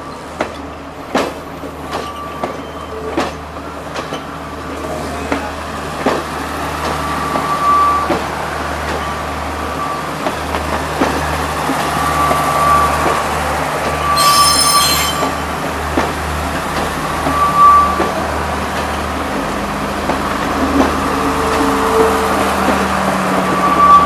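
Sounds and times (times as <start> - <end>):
train wheels squealing: 1.9 - 3.4, 6.8 - 10.3, 11.8 - 15.6, 16.9 - 18.9, 23.3 - 24.0.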